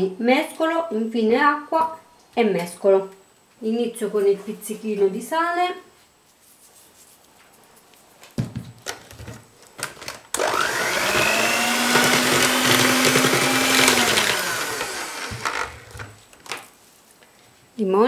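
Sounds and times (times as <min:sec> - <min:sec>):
electric hand mixer whining: 0:10.4 - 0:16.1.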